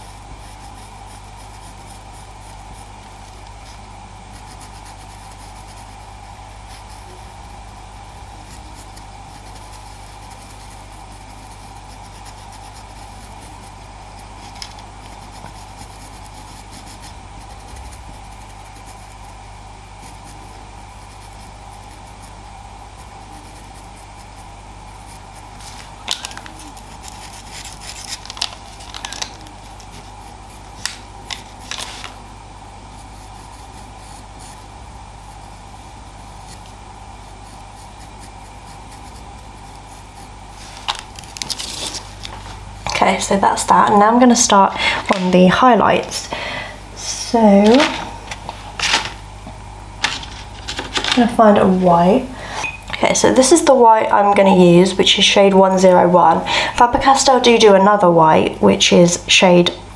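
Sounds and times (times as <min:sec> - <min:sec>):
pencil sharp scratches and taps: 0:00.0 - 0:07.4, 0:08.0 - 0:19.4, 0:20.0 - 0:22.4, 0:23.0 - 0:32.1
pencil scratching on paper: 0:00.0 - 0:32.2, 0:32.8 - 0:42.2, 0:50.0 - 0:52.3
steady background hum: 0:00.0 - 0:59.9.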